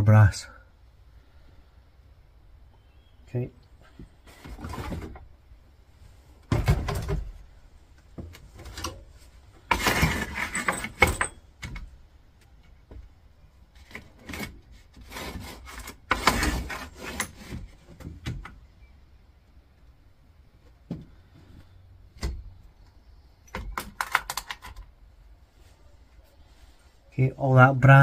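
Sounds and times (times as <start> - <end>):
plastic tool case handled: 8.2 - 11.9
clatter on a workbench: 9.6 - 11.9.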